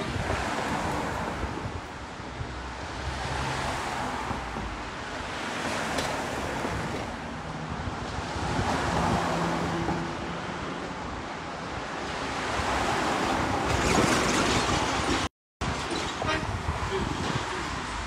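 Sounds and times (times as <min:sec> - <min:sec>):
wind on microphone: 0:00.0 - 0:03.8, 0:07.7 - 0:10.0, 0:12.5 - 0:18.0.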